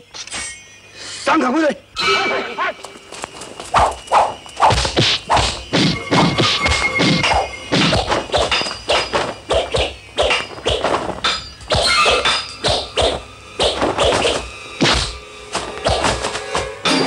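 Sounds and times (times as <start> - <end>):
punch and kick whacks: 4.6 - 11.0, 12.7 - 15.2.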